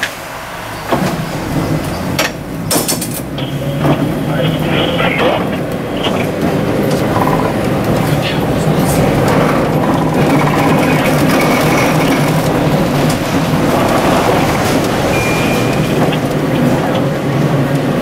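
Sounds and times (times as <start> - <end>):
tram running on track: 0.0 - 18.0
high-pitched tone: 15.1 - 16.3.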